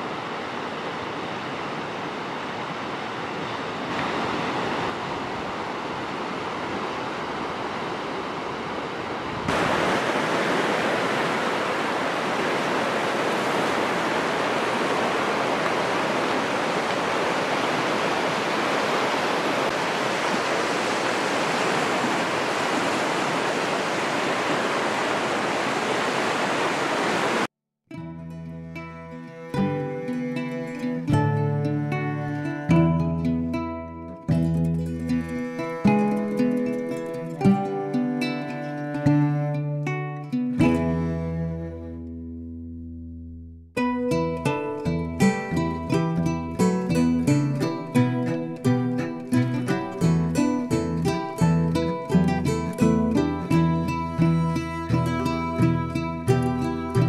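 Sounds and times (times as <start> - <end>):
turbulent river rushing: 0.0 - 27.5.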